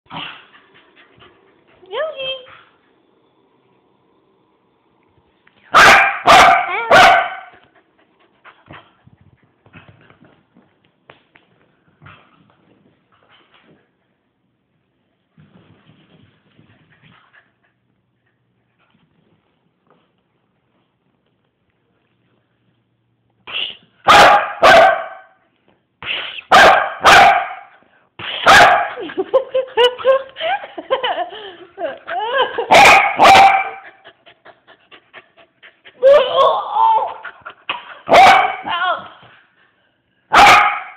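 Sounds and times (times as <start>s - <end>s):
dog barking: 5.7s - 7.6s, 24.0s - 25.4s, 26.5s - 27.7s, 28.4s - 29.0s, 32.7s - 33.8s, 38.1s - 38.7s, 40.3s - 40.9s.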